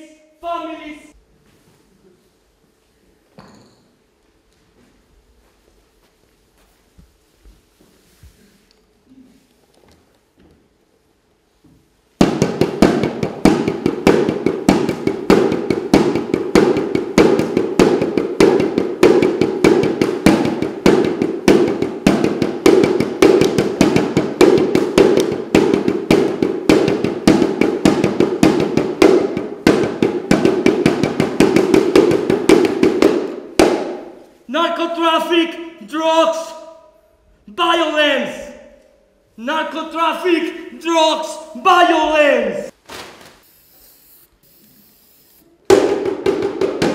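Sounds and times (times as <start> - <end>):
frame drum beaten rapidly: 12.2 - 34.1.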